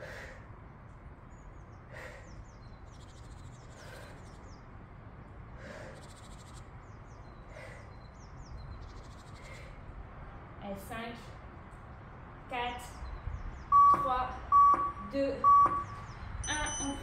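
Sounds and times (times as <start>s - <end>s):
person breathing hard: 0.0s - 0.6s, 1.9s - 2.6s, 3.7s - 4.4s, 5.5s - 6.2s, 7.3s - 8.1s, 9.3s - 10.0s
small birds chirping: 0.0s - 17.0s.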